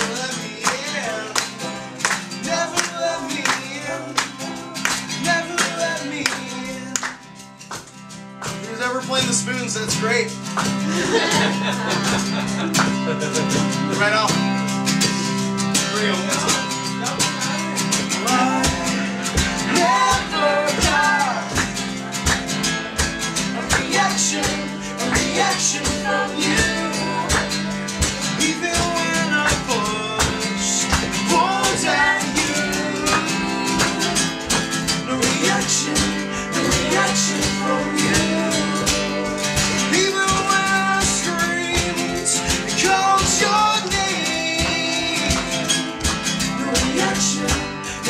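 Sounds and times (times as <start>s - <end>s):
man singing: 0.0s - 7.0s, 15.0s - 21.6s, 23.5s - 48.0s
rhythmic sharp clicks: 0.0s - 11.0s, 12.2s - 48.0s
strummed acoustic guitar: 0.0s - 48.0s.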